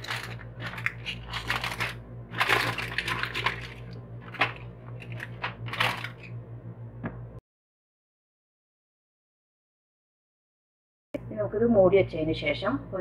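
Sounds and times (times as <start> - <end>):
aluminium foil crinkling: 0.0 - 6.3.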